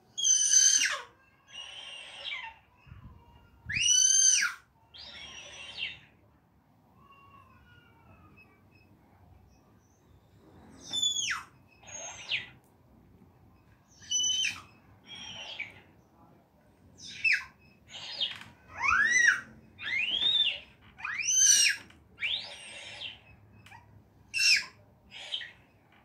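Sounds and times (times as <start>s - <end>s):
baby squealing: 0.2s - 2.6s, 3.6s - 5.8s, 14.0s - 15.6s, 17.1s - 23.1s, 23.7s - 24.8s
squeaky talking toy voice: 0.2s - 6.2s, 10.8s - 12.6s, 13.9s - 15.8s, 17.0s - 25.7s.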